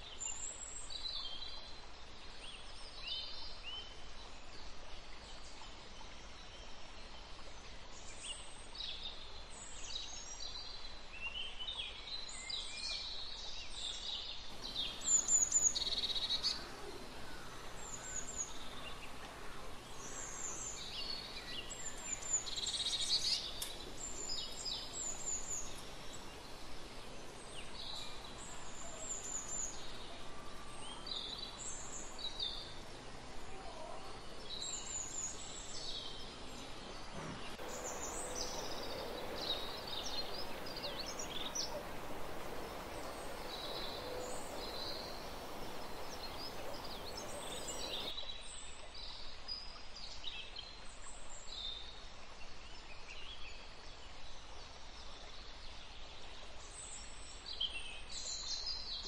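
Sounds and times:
songbirds chirping: 0.0s - 48.2s
steady outdoor hiss: 0.0s - 59.0s.

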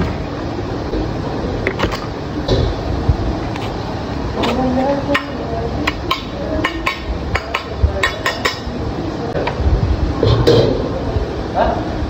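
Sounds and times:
low rumble: 2.2s - 4.4s.

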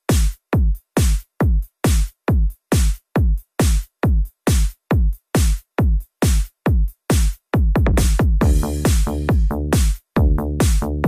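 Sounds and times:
deep kick drum sliding down: 7.8s - 9.6s.

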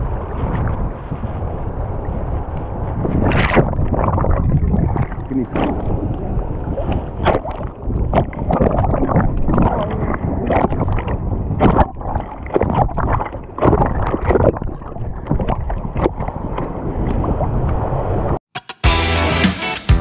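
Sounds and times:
sea water sloshing and splashing: 0.0s - 18.4s
wind rumbling on microphone: 0.0s - 18.4s.

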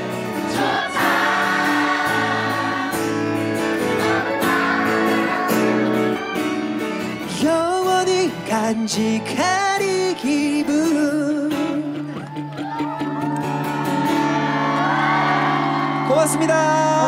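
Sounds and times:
crowd singing a ballad: 0.0s - 6.4s
strummed acoustic guitar: 0.0s - 12.2s
man singing: 7.2s - 12.2s, 16.0s - 17.0s.

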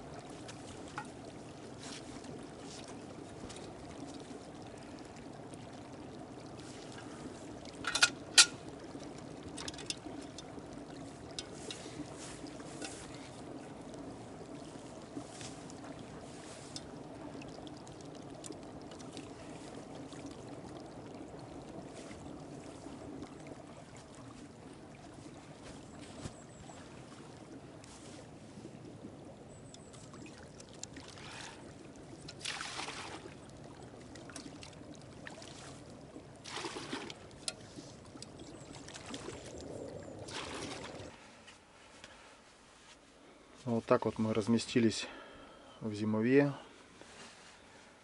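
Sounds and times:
creek running: 0.0s - 48.0s
water splashing into pot: 7.0s - 13.3s, 32.2s - 33.4s, 36.4s - 37.6s.

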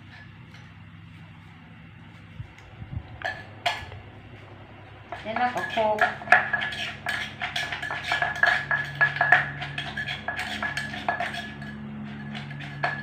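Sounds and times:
metal spoon clinking: 5.1s - 13.0s
pestle pounding in clay mortar: 5.1s - 13.0s.

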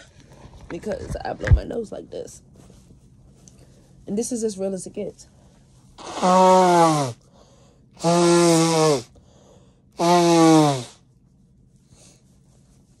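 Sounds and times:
person blowing nose: 6.0s - 7.2s, 8.0s - 9.1s, 10.0s - 11.0s.

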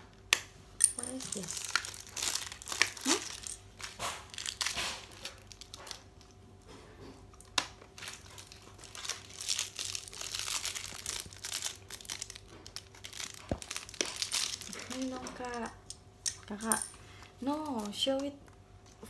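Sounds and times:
wrapping crinkling and tearing: 1.1s - 6.4s, 7.2s - 15.8s.

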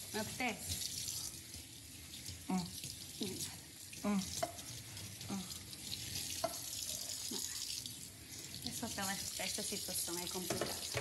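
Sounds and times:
tap running into a sink: 4.4s - 4.7s, 6.3s - 6.9s, 10.2s - 11.0s.

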